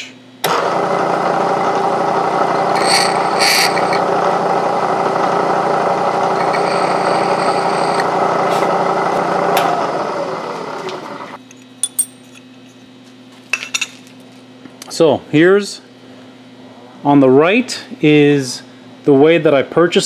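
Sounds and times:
spindle winding down: 0.4 - 11.4
milling spindle whine: 0.6 - 11.4
drill bit scraping metal: 2.5 - 4.1, 6.0 - 9.2.

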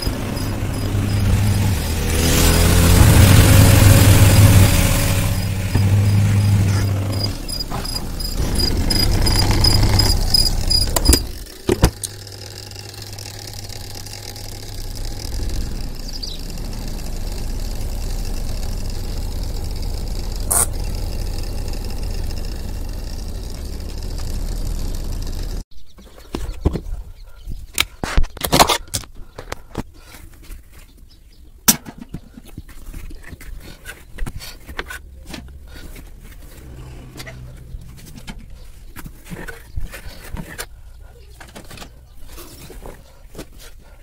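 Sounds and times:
washing machine motor humming: 0.0 - 25.6.

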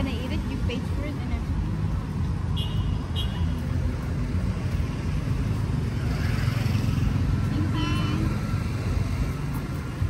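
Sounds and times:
road traffic rumble: 0.0 - 10.0
vehicle passing with rushing hiss: 3.6 - 10.0.

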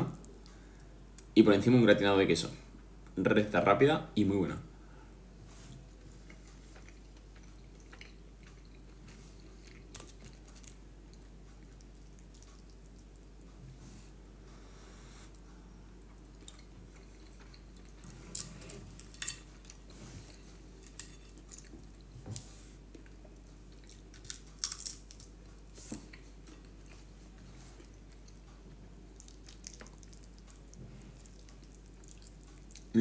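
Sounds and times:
person chewing with mouth smacks: 5.7 - 13.5, 16.1 - 22.1, 22.9 - 33.0.

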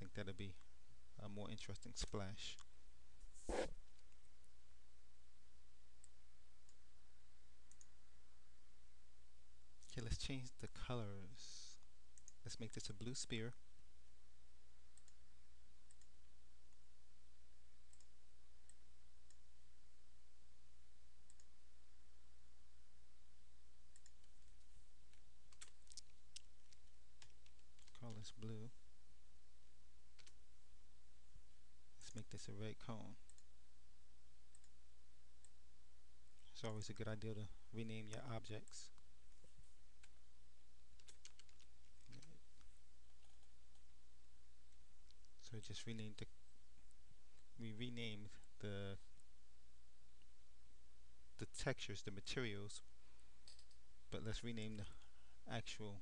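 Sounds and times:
low electrical hum: 0.0 - 56.0
computer mouse clicks: 15.9 - 16.1, 23.9 - 28.5.

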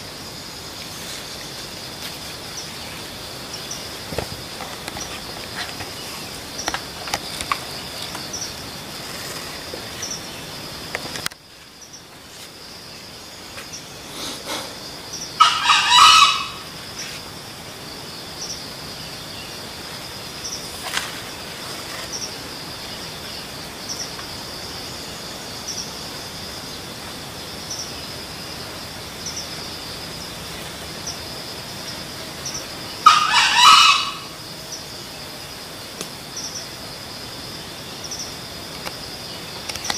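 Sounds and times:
high insect drone: 0.0 - 39.9
rooster crowing: 15.4 - 16.6, 33.0 - 34.3.

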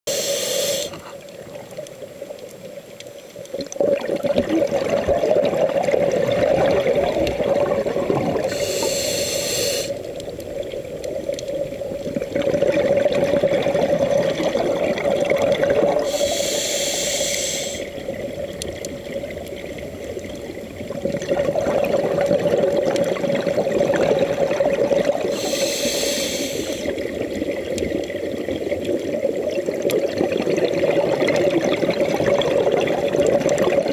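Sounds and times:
regulator inhale hiss: 0.1 - 1.2, 8.4 - 10.1, 16.0 - 18.1, 25.2 - 27.1
bubbling exhalation: 3.8 - 8.6, 12.1 - 16.2, 20.9 - 25.6.

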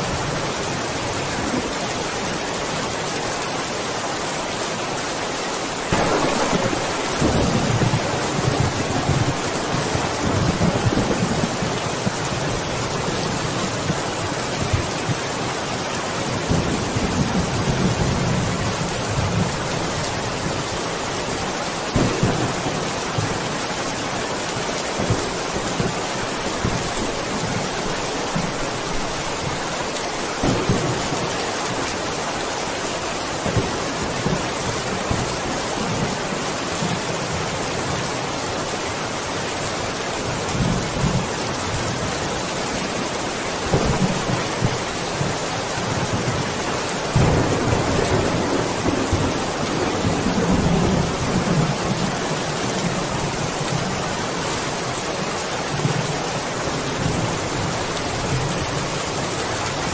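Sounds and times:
heavy rain: 0.0 - 59.9
thunder rumbling and clapping: 5.9 - 13.2, 21.9 - 23.5.

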